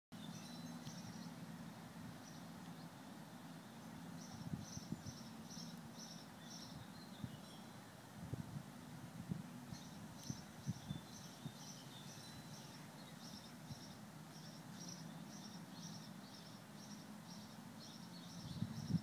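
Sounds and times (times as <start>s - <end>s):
small bird chirping: 0.2s - 1.4s, 3.8s - 7.8s, 9.7s - 19.0s.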